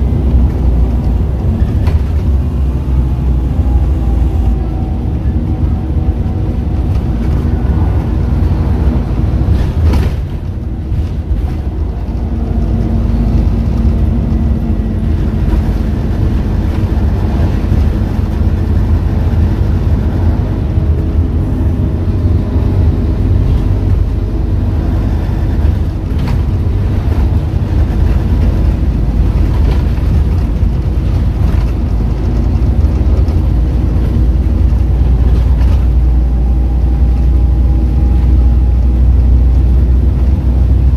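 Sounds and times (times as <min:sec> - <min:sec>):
bus engine and road rumble: 0:00.0 - 0:40.9.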